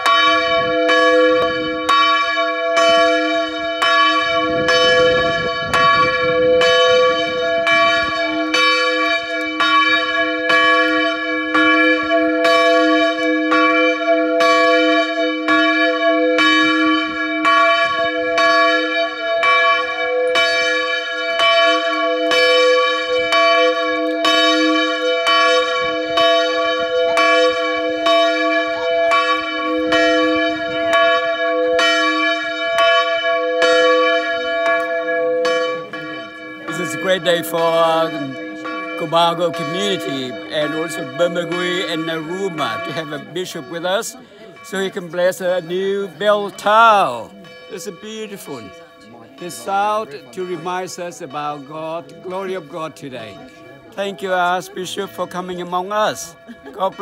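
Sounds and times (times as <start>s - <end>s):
church bell ringing: 0.0s - 57.0s.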